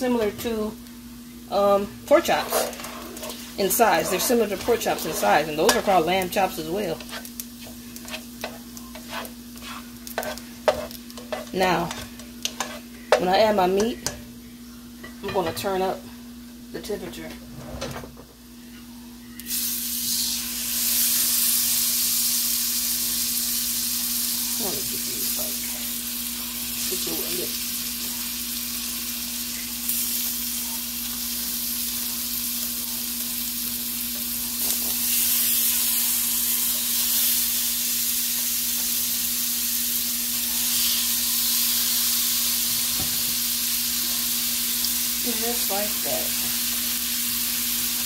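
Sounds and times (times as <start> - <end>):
meat sizzling in a hot pan: 0.0 - 13.6, 19.4 - 48.0.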